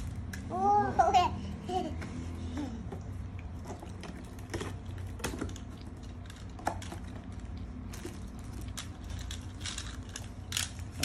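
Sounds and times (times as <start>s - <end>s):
plastic toy pieces clattering: 4.0s - 11.0s.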